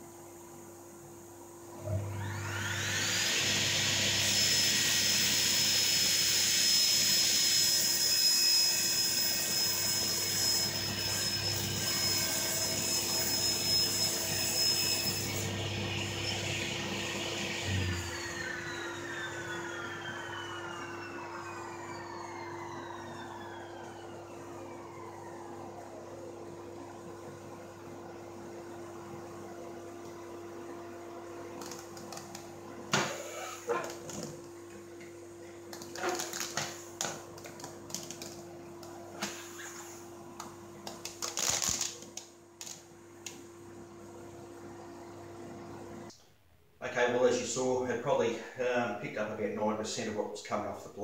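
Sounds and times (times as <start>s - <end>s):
dust extractor humming: 1.6s - 7.4s, 10.7s - 42.0s
table saw blade winding down: 1.8s - 25.6s.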